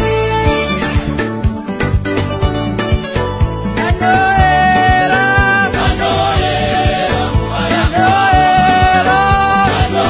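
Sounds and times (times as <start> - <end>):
upbeat instrumental music: 0.0 - 10.0
steady drum beat: 3.4 - 10.0.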